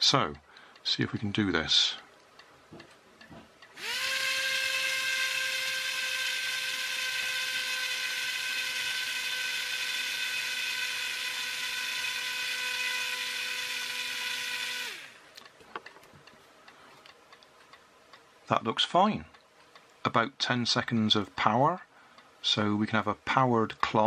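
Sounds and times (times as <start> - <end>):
small electric motor whining: 3.8 - 15.2.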